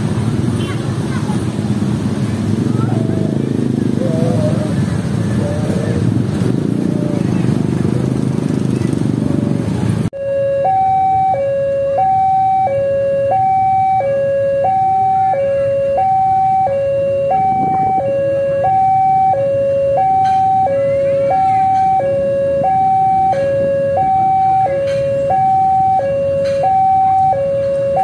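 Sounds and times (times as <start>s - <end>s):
level crossing two-tone alarm: 10.2s - 28.0s.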